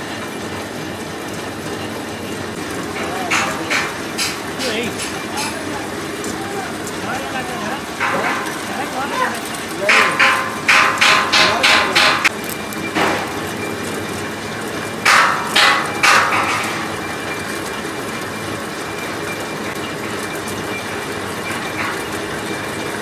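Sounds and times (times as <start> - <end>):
sharp metallic knocks: 2.8 - 5.8, 7.1 - 13.5, 15.0 - 17.8.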